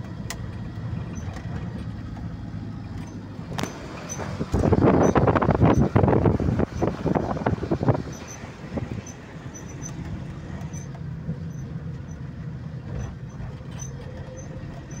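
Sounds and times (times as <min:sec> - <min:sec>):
engine and tyres rumbling: 0:00.0 - 0:15.0
wind gusts on microphone: 0:04.2 - 0:09.1.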